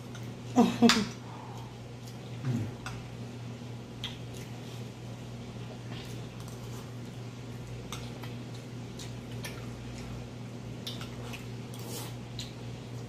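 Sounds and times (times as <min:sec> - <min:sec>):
steady low hum: 0:00.0 - 0:13.0
chewing mouth noises: 0:05.9 - 0:10.2, 0:10.8 - 0:12.6.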